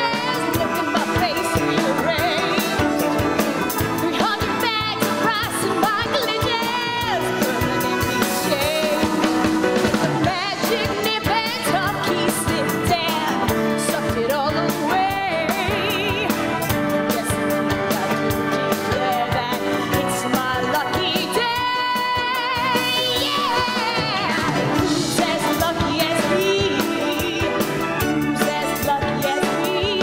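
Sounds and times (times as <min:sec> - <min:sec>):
band with drums: 0:00.0 - 0:30.0
woman singing with vibrato: 0:00.0 - 0:30.0.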